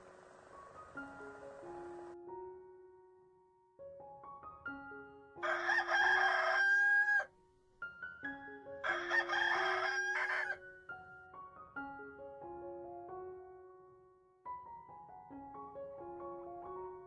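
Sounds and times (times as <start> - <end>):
soft piano music: 0.0 - 17.0
rooster crowing: 5.4 - 7.3, 8.8 - 10.6.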